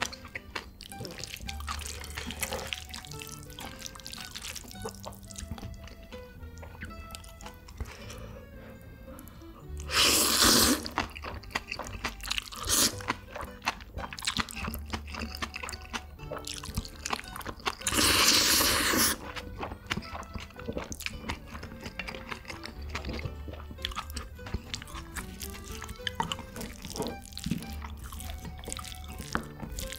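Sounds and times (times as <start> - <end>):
crunchy chewing: 0.0 - 29.9
loud slurps: 9.8 - 11.0, 12.5 - 13.1, 17.8 - 19.2.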